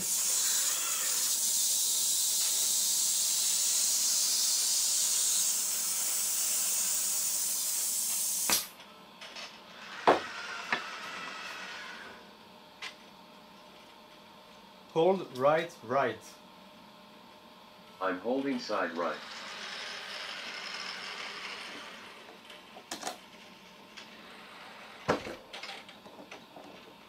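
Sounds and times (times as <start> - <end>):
pneumatic gripper air hiss: 0.0 - 8.7.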